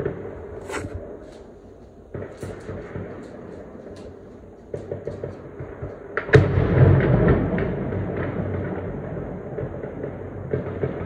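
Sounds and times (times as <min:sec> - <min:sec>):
sharp gunfire cracks: 0:02.1 - 0:07.4.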